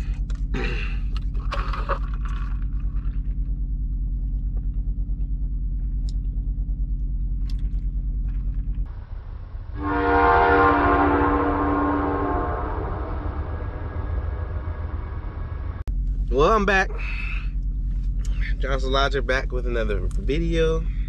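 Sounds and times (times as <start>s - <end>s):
truck horn blast: 9.7s - 15.8s.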